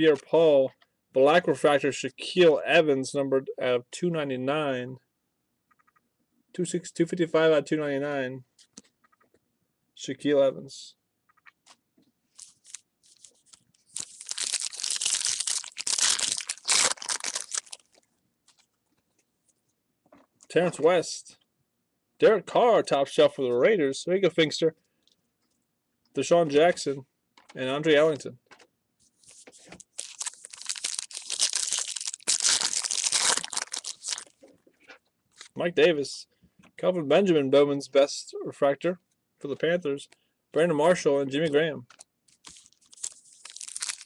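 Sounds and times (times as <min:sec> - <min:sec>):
foil wrapper tearing and crinkling: 0:12.4 - 0:18.0, 0:29.9 - 0:34.3, 0:42.3 - 0:44.0.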